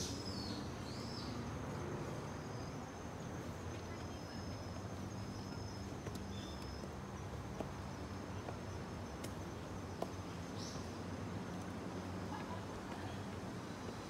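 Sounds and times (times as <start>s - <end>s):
footsteps on stone steps: 6.8s - 8.6s.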